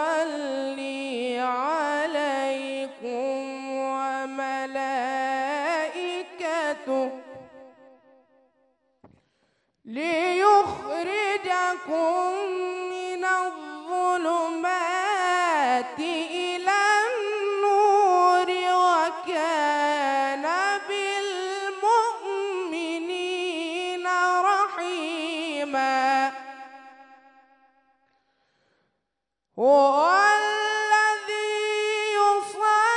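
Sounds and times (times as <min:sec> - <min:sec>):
man chanting melodically: 0:00.0 - 0:07.8.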